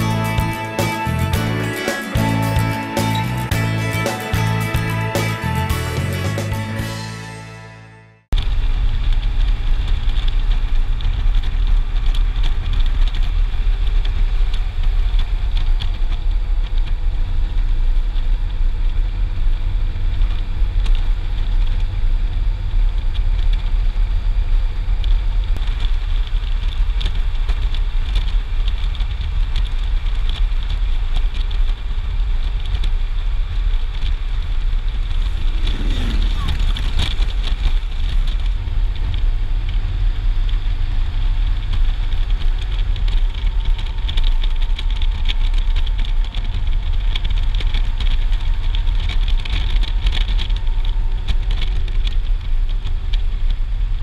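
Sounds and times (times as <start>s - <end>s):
music: 0.0s - 8.3s
motorcycle engine drone: 0.0s - 54.0s
wind rumble on microphone: 8.4s - 54.0s.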